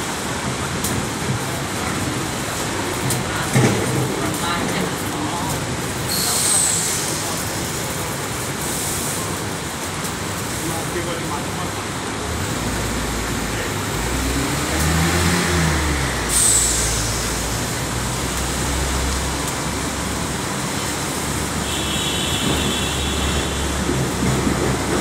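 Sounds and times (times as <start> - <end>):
city traffic rumble: 0.0 - 25.0
sudden loud hiss: 6.0 - 9.4, 13.4 - 20.2.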